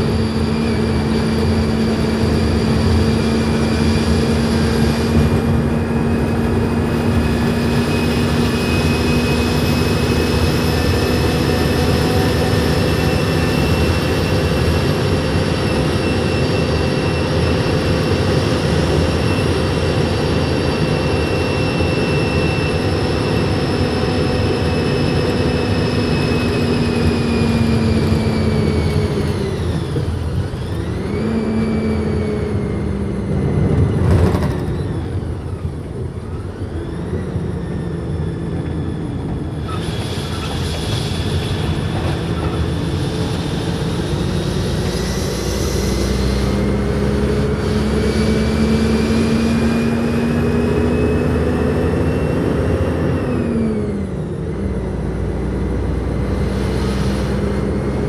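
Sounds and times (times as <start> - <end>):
road noise: 0.0 - 58.0
truck engine from inside cab: 0.0 - 58.0.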